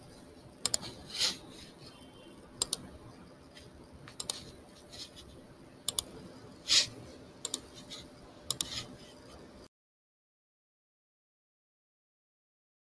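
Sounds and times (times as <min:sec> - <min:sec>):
computer mouse clicking: 0:00.6 - 0:01.1, 0:02.6 - 0:06.8, 0:07.4 - 0:09.0.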